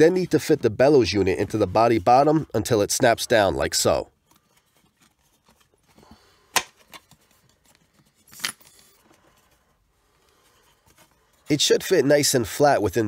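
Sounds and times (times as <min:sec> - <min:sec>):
faint handling noise: 0:03.3 - 0:12.0.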